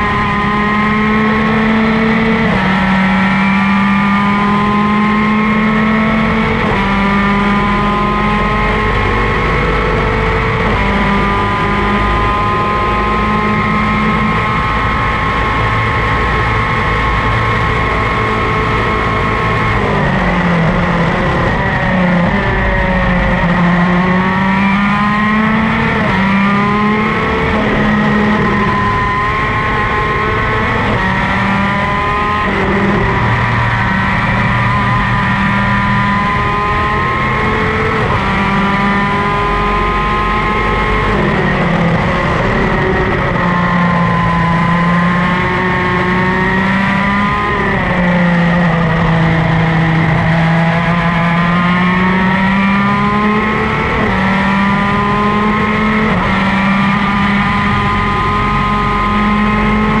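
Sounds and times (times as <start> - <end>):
racing kart engine: 0.0 - 60.0.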